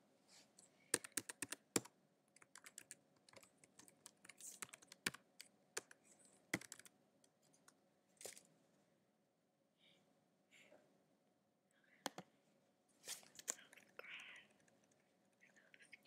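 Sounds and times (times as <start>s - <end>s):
typing on computer keyboard: 0.9s - 6.9s.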